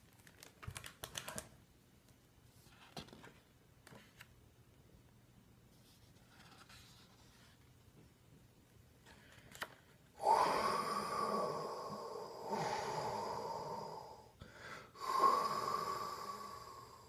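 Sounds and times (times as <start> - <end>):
person imitating wind howling: 10.2 - 14.3.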